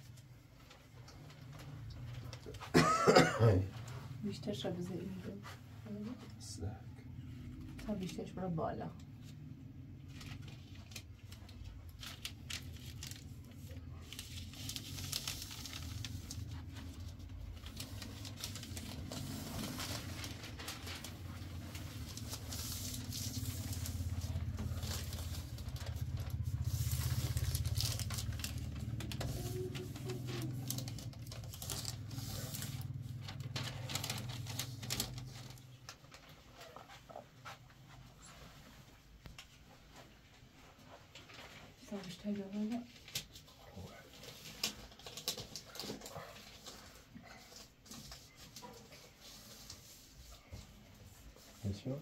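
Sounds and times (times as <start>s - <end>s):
steady low rumble: 6.6s - 35.6s
material rustling and crackling: 10.1s - 52.0s.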